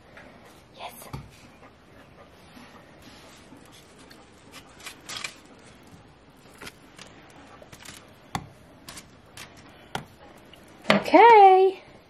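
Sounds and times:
clicks and scrapes on foil and bowl: 4.0s - 5.8s, 6.4s - 8.2s, 8.8s - 9.8s.

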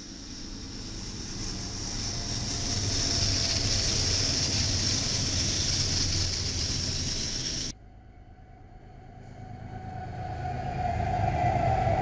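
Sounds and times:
train wheels rushing on rails: 0.0s - 7.7s
locomotive engines droning: 0.0s - 12.0s.

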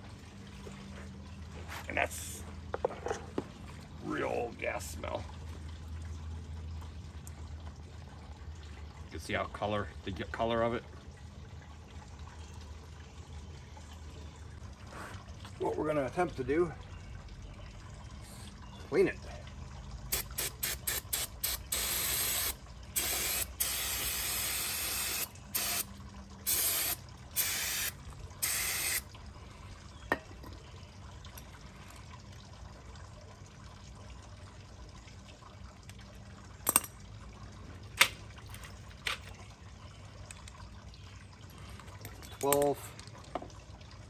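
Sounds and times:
aerosol spray hissing: 20.2s - 25.8s, 26.5s - 29.0s.

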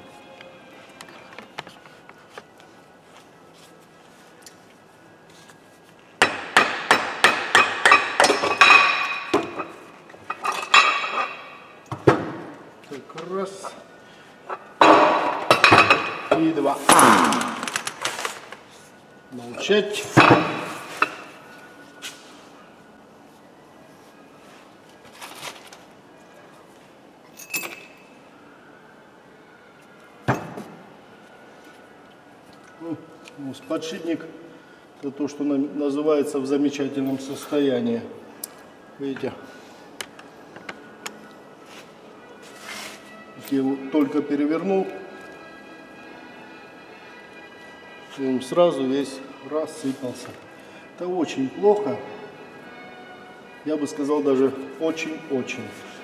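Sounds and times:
hammer striking steel wheel hub: 6.2s - 11.5s
metal clink: 27.4s - 28.0s.

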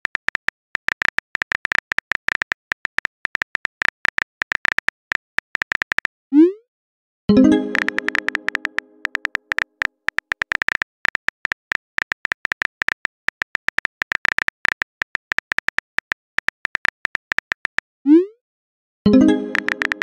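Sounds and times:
phone keyboard key clicks: 0.0s - 6.1s, 7.7s - 17.9s, 19.5s - 20.0s
tone: 7.3s - 9.6s, 19.1s - 20.0s.

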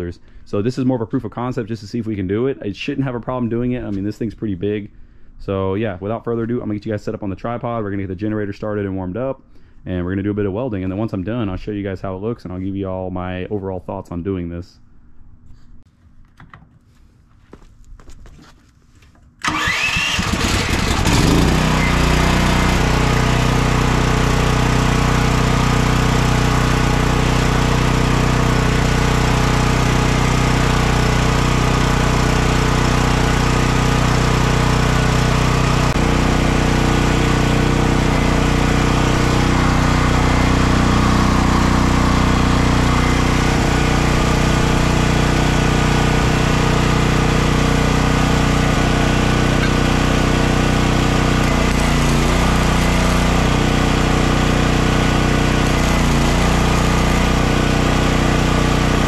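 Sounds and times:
generator engine starting and running: 19.2s - 59.0s.

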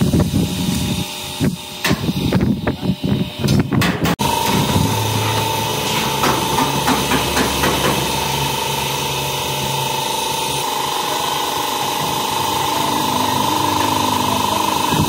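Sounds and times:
machinery high whine: 0.0s - 15.0s
machinery low hum: 0.0s - 15.0s
sharp knocks: 3.8s - 8.2s.

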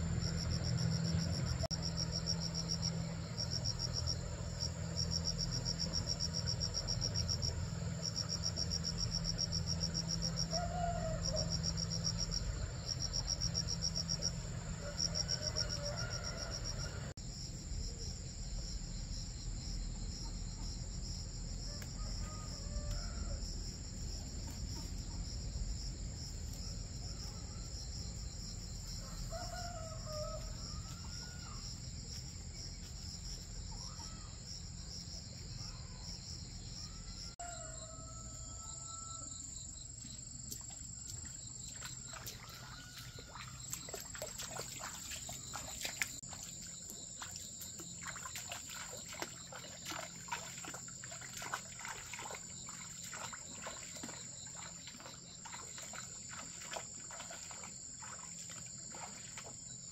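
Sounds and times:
low steady hum: 0.0s - 37.2s
insects chirping: 0.0s - 59.9s.

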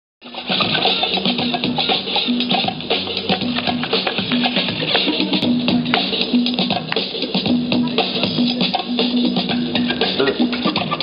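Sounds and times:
music with percussion and bass: 0.2s - 11.0s.

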